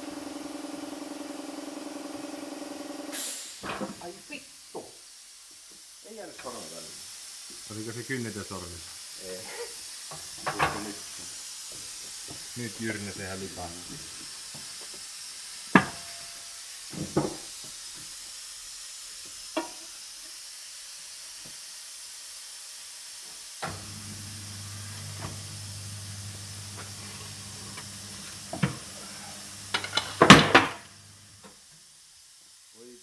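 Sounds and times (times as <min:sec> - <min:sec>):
turntable motor humming: 0:23.7 - 0:31.4.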